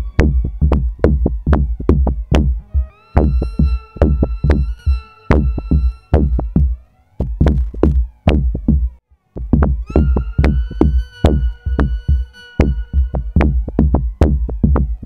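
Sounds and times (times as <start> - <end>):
heavy kick drum beat: 0.0 - 15.0
held synth chord: 2.5 - 7.2, 9.8 - 14.2.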